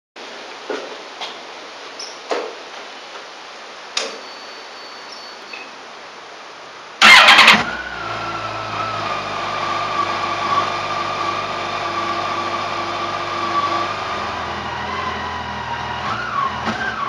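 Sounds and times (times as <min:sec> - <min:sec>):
motorcycle starter cranking: 0:07.0 - 0:07.8
motorcycle engine idling: 0:07.0 - 0:08.8.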